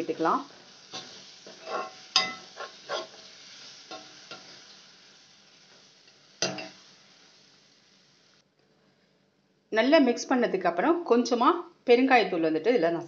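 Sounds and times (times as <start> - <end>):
oil sizzling: 0.0 - 8.4
spoon scraping in a pan: 0.7 - 7.3
metal clank against pan: 1.0 - 2.5, 6.4 - 6.8.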